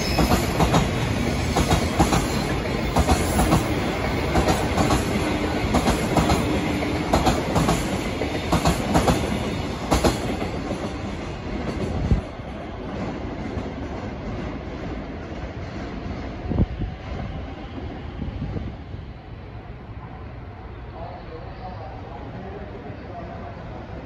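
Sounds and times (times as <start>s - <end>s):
freight train rumble: 0.0s - 24.0s.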